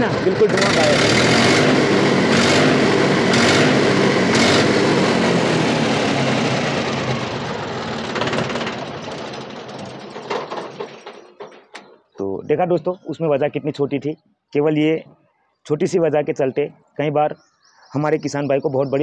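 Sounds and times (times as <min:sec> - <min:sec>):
tractor diesel engine running hard: 0:00.0 - 0:12.0.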